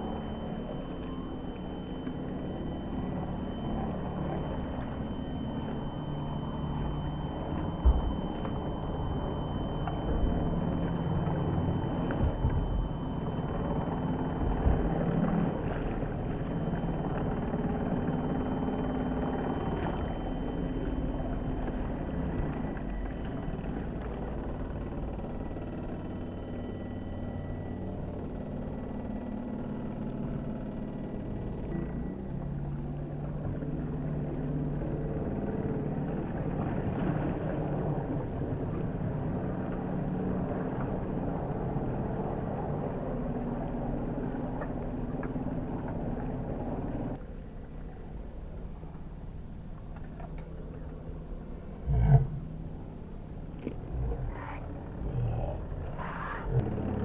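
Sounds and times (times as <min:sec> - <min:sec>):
model boat motor whine: 0:00.0 - 0:57.0
rush of boat wake: 0:32.2 - 0:47.2.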